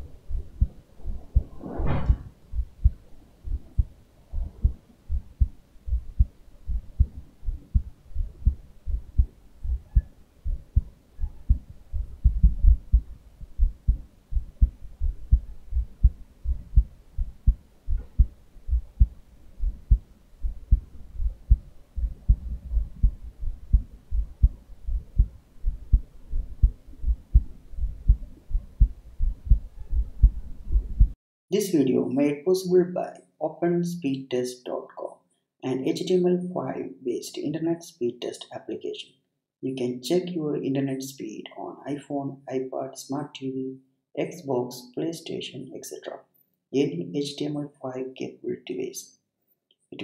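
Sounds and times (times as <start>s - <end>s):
heartbeat through stethoscope: 0.0s - 31.2s.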